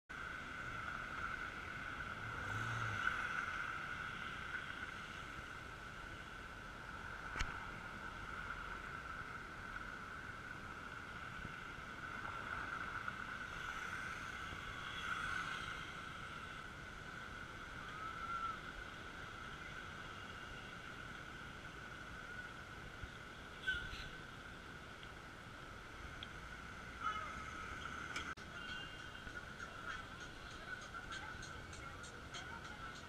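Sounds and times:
passing traffic: 0:00.1 - 0:33.0
steady high-pitched hum: 0:00.1 - 0:33.0.

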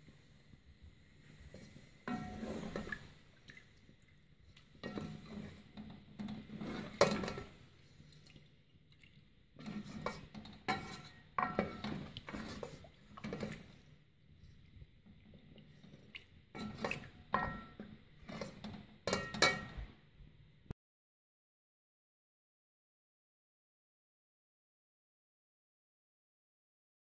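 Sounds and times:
ladle scraping and knocking pot: 0:01.4 - 0:03.3, 0:04.6 - 0:07.6, 0:09.6 - 0:13.8, 0:15.4 - 0:19.9
thick curry sloshing: 0:01.4 - 0:13.9.

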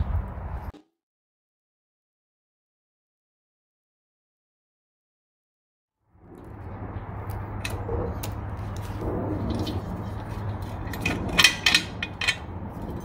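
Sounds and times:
steady low hum: 0:06.1 - 0:13.0
metal parts clinking and clicking: 0:09.5 - 0:13.0.

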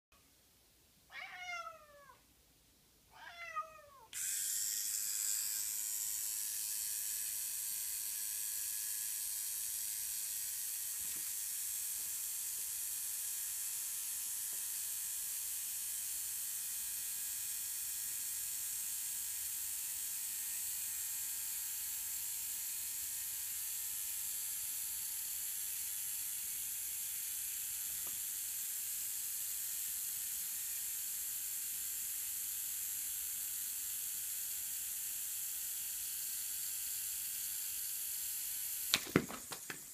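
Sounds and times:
cat meowing: 0:01.1 - 0:02.2, 0:03.1 - 0:04.1
electric beard trimmer whirring: 0:04.1 - 0:39.9.

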